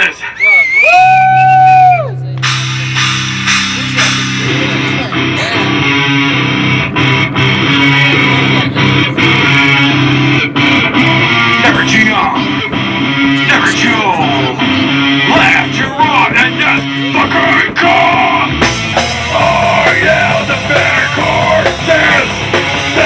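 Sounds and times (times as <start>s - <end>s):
live rock band playing: 2.2s - 23.0s.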